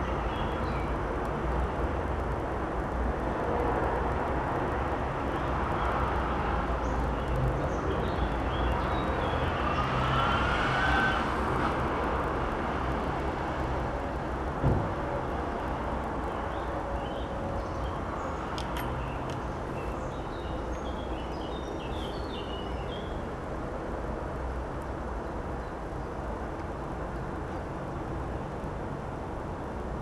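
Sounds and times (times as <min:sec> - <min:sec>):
passing vehicles rumble: 0:00.0 - 0:30.0
dull thump: 0:14.6 - 0:15.0.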